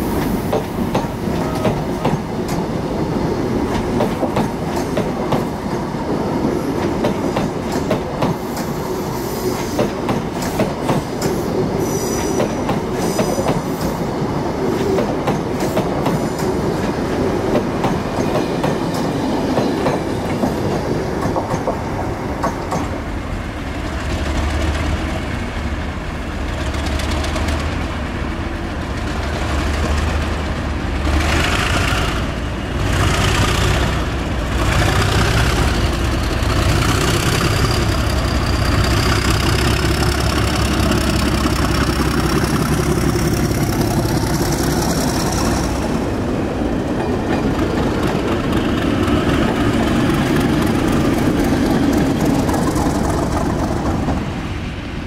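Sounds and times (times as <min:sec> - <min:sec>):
train wheels clicking over rail joints: 0:00.1 - 0:02.8, 0:03.6 - 0:23.1, 0:26.4 - 0:28.1, 0:28.8 - 0:54.5.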